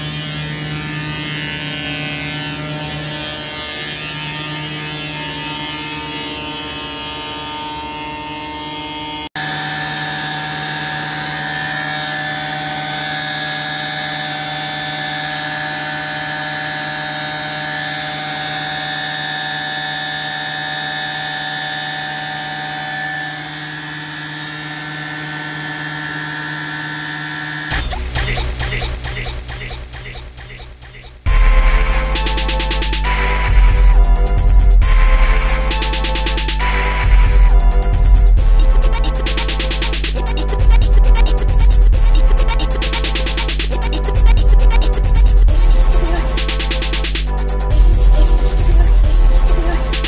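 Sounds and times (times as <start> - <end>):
pneumatic blower whine: 0.0 - 30.4, 31.2 - 50.0.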